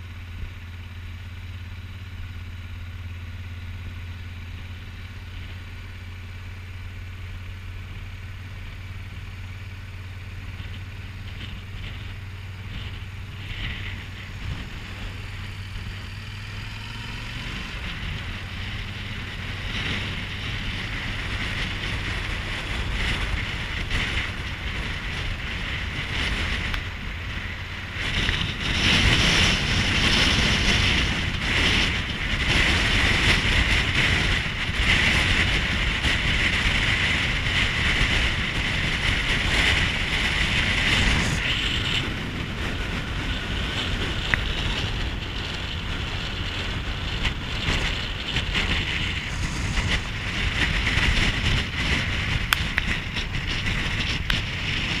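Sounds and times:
motorcycle engine and road rumble: 0.0 - 55.0
wind rushing over microphone: 2.9 - 55.0.

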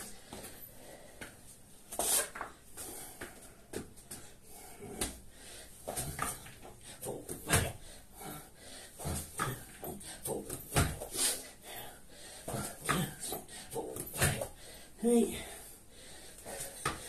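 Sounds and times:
heavy breathing: 0.0 - 1.6, 2.7 - 17.0.

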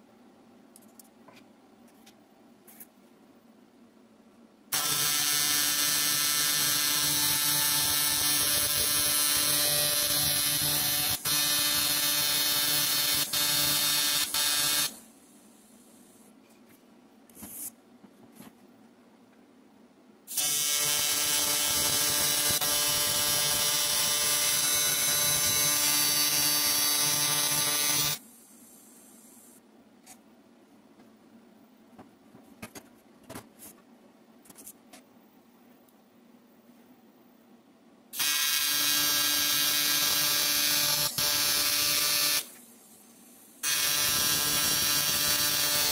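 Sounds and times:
tig welding arc buzzing: 4.8 - 15.0, 20.3 - 28.2, 38.2 - 42.6, 43.6 - 45.9.

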